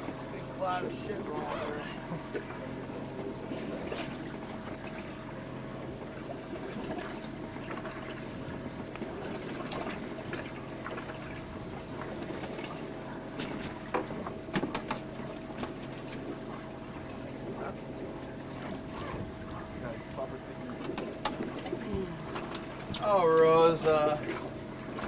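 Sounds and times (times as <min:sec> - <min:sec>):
boat engine humming: 0:00.0 - 0:25.0
water sloshing along hull: 0:00.0 - 0:25.0.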